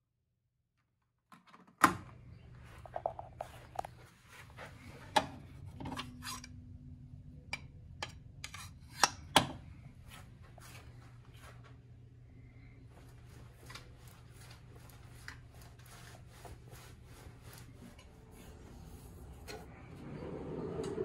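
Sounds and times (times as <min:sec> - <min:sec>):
steady low hum: 0:02.1 - 0:21.0
rubbing and scuffing handling noises: 0:02.6 - 0:05.1, 0:10.0 - 0:11.9, 0:12.6 - 0:19.4.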